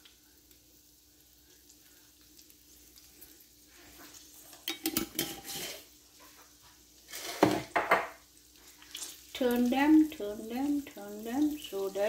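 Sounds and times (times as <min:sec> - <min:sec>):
eggs sizzling on hot griddle: 0:00.0 - 0:12.0
kitchen utensils clattering: 0:04.6 - 0:05.8, 0:07.1 - 0:08.2.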